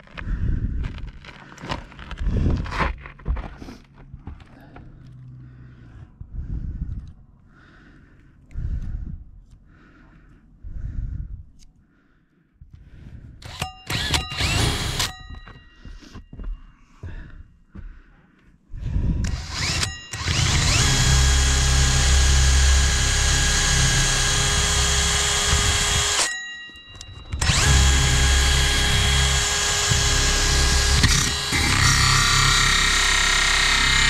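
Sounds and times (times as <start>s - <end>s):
power drill with hole saw: 13.4s - 15.2s, 19.2s - 26.4s, 27.3s - 34.0s.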